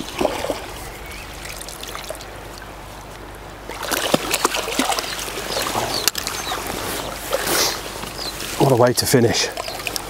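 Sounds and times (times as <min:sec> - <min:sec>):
river water running: 0:00.0 - 0:10.0
fish splashing at the surface: 0:03.7 - 0:06.3.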